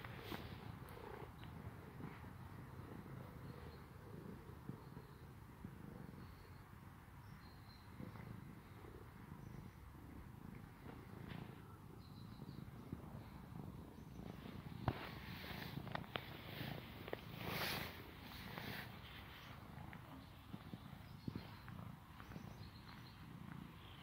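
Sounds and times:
rustling: 0:00.0 - 0:03.0, 0:14.2 - 0:19.8
cat purring: 0:00.0 - 0:24.0.

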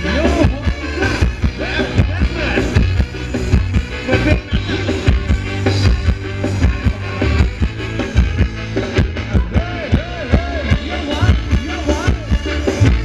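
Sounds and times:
drum and bass beat: 0:00.0 - 0:13.0.

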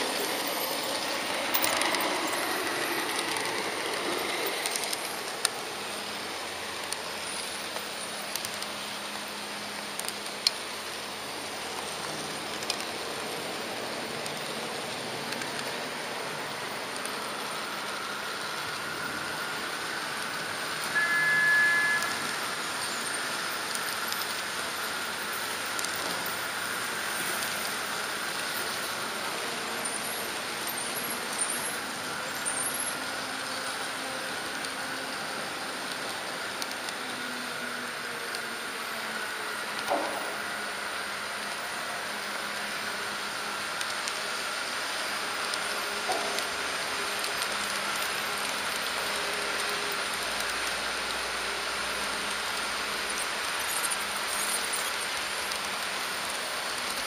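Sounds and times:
model train rolling rattle: 0:00.0 - 0:21.4, 0:22.1 - 0:57.0
brief high tone: 0:20.9 - 0:22.4.

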